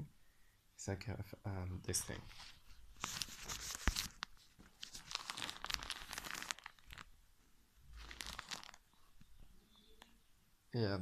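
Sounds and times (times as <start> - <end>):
plastic pouch crinkling: 2.1 - 7.2, 7.9 - 9.3.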